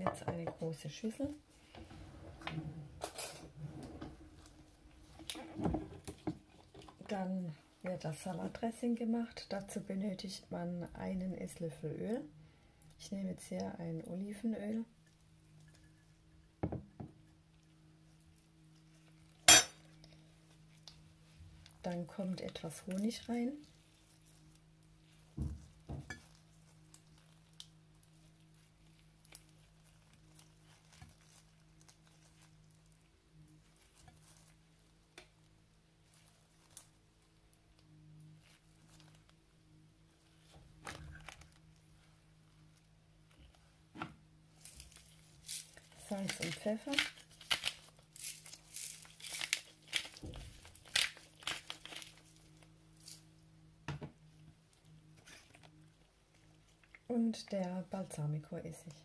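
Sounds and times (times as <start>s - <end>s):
plastic sachet crinkling: 44.6s - 53.3s.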